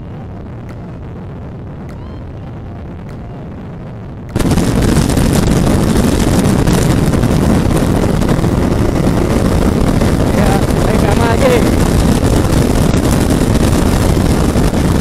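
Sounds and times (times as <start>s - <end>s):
wind buffeting microphone: 0.0s - 15.0s
wind rushing: 0.0s - 15.0s
motorcycle engine at speed: 4.3s - 15.0s.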